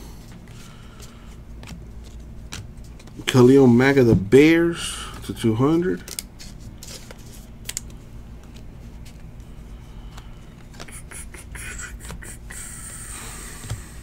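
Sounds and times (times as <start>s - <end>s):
cards rustling: 0.5s - 3.5s, 5.1s - 12.3s
cards clicking and slapping: 6.0s - 9.4s, 10.1s - 12.3s.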